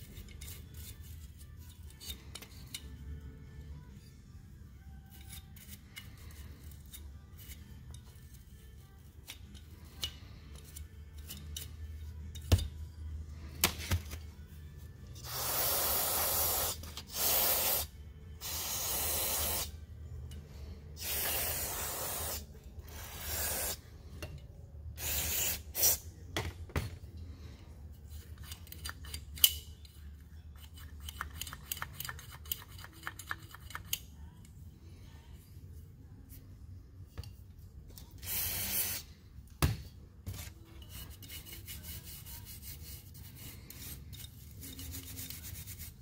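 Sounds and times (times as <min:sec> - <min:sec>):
aerosol spray hissing: 0:15.3 - 0:19.7, 0:21.0 - 0:22.4, 0:23.0 - 0:23.8, 0:38.2 - 0:39.0
small clicks and scrapes: 0:28.0 - 0:34.6.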